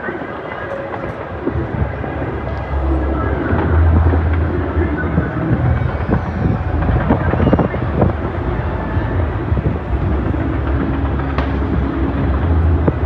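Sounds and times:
distant fireworks booms and crackles: 0.0 - 13.0
sharp firework crack: 9.2 - 13.0.

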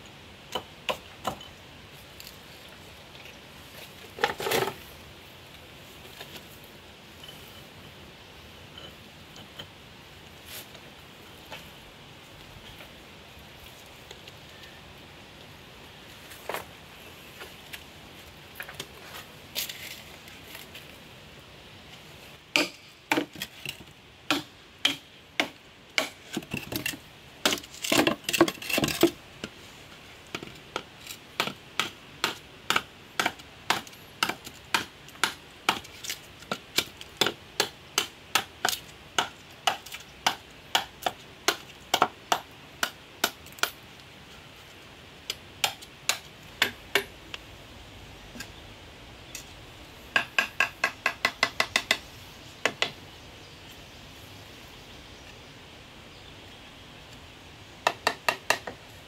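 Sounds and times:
knife chopping bamboo: 22.6 - 23.4, 24.3 - 26.4, 31.4 - 43.8.

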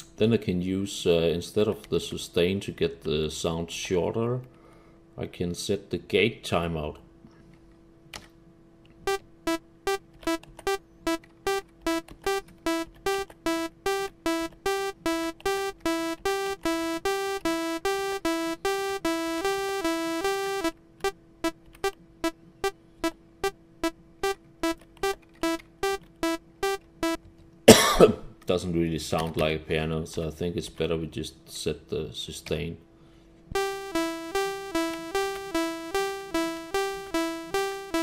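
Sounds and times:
synthesized plucked notes: 9.1 - 27.2, 33.6 - 38.0.

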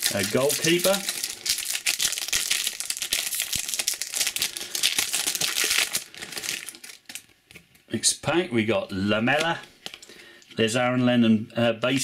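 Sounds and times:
foil wrapper crinkling: 0.0 - 7.6, 9.4 - 10.2.

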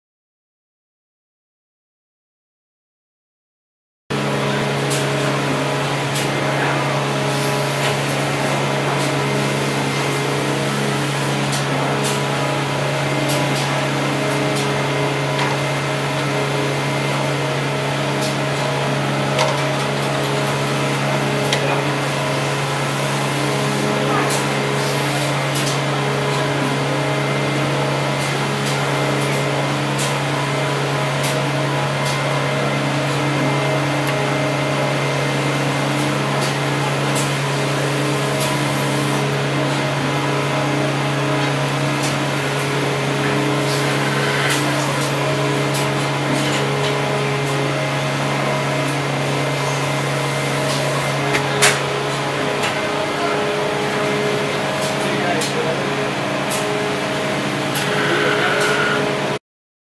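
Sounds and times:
lathe running: 31.8 - 59.4.

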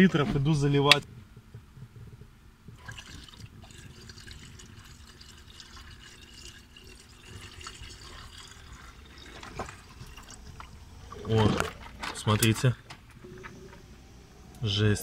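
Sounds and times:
water pouring into tank: 2.8 - 12.4.

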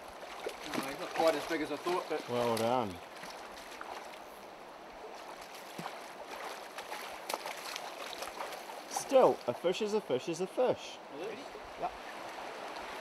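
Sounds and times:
stream water running: 0.0 - 13.0
fish splashing in net: 0.2 - 4.1, 5.2 - 8.8.

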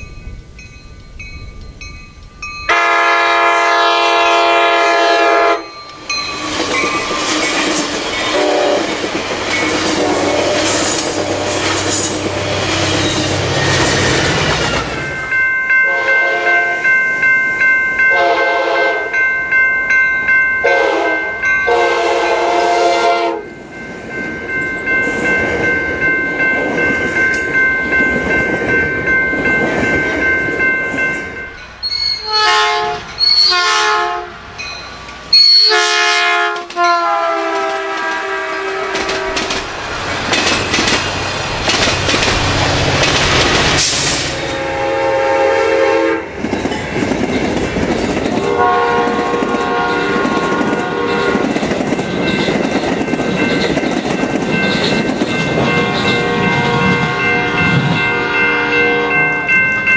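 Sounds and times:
train noise: 0.0 - 59.9
train air horn blasts: 2.7 - 5.7, 8.3 - 8.9, 9.7 - 12.9, 15.9 - 16.8, 18.1 - 19.1, 20.6 - 23.5, 32.2 - 34.4, 35.4 - 39.6, 43.8 - 46.3, 48.4 - 51.4, 55.8 - 59.2
level crossing bell ringing: 14.9 - 22.5.

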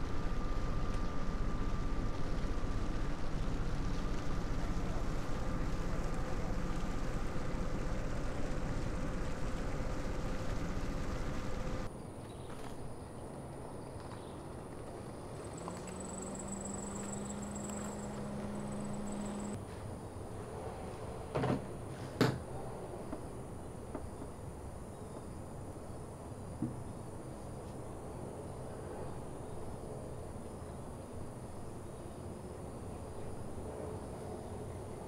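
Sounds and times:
faint steady hum: 0.0 - 35.0
thin high whine: 15.4 - 19.6.

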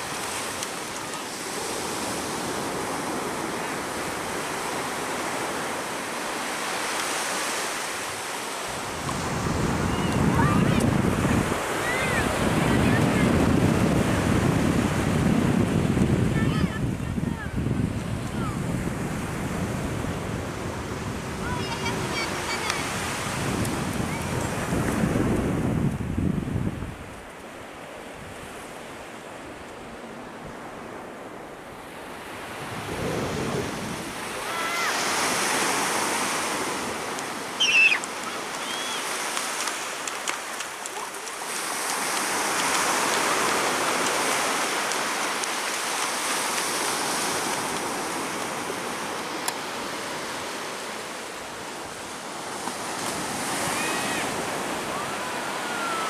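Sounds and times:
sea waves washing onto beach: 0.0 - 56.0
wind: 0.0 - 56.0
distant voices calling: 37.2 - 39.6.

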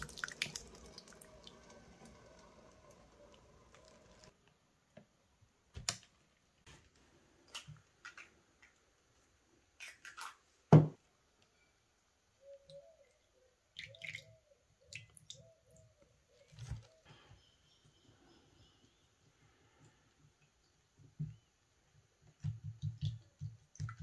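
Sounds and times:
milk trickling into bowl: 0.0 - 4.3.

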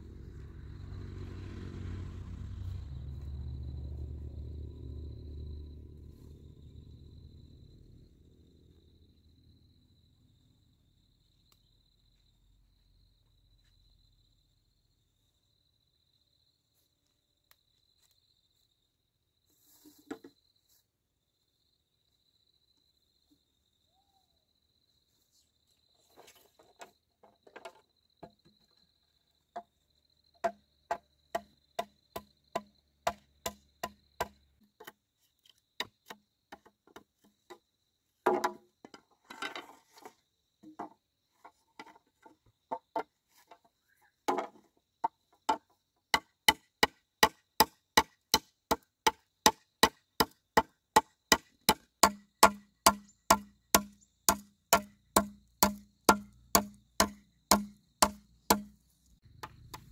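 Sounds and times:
blade chopping bamboo: 46.2 - 59.9.

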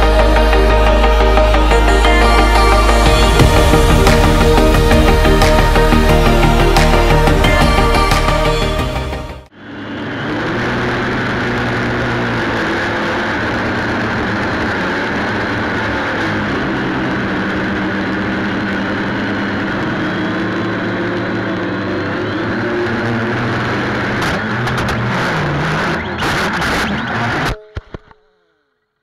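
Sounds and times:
drone propellers buzzing: 0.0 - 28.6.

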